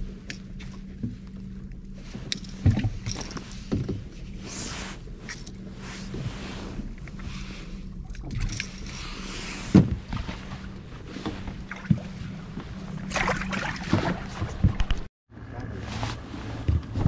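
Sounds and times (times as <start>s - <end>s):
boat motor running: 0.0s - 17.0s.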